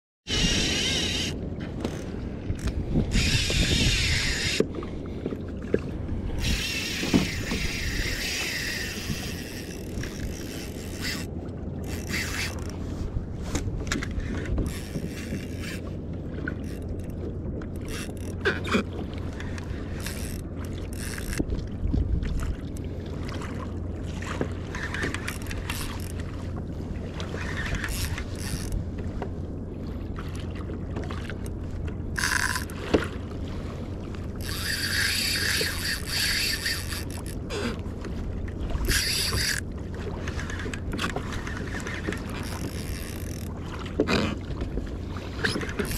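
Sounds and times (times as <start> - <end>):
fishing reel cranking: 0.3 - 4.6, 6.4 - 12.8, 14.2 - 15.8, 16.6 - 17.2, 17.8 - 18.7, 20.0 - 21.4, 24.7 - 26.2, 27.4 - 28.8, 32.2 - 32.7, 34.4 - 37.5, 38.8 - 39.6, 41.4 - 43.5, 45.4 - 45.9
water splashing against kayak hull: 0.3 - 45.9
wind rumble on microphone: 0.3 - 45.9.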